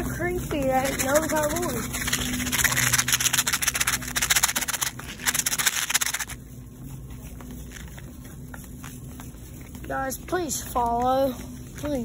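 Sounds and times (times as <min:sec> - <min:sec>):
shopping cart rattling: 0:00.0 - 0:06.4.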